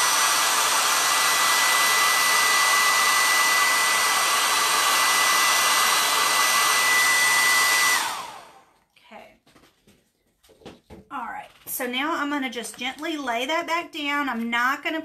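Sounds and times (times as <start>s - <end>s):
hair dryer running: 0.0s - 8.8s.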